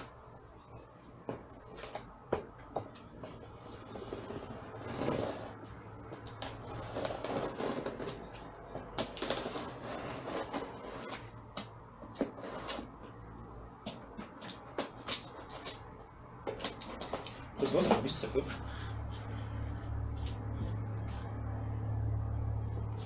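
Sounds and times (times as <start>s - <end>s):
knife slicing packing tape: 6.2s - 12.9s, 14.6s - 15.8s.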